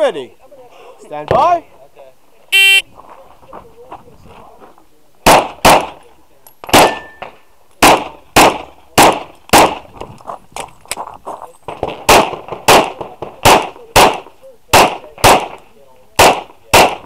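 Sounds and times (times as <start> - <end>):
pistol shots: 5.2 - 6.0, 6.6 - 9.8, 11.7 - 15.6, 16.2 - 17.0.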